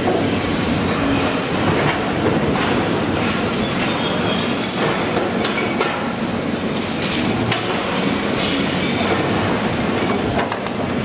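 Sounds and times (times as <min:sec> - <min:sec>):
high metallic squeals: 0:00.7 - 0:01.6, 0:03.5 - 0:05.0.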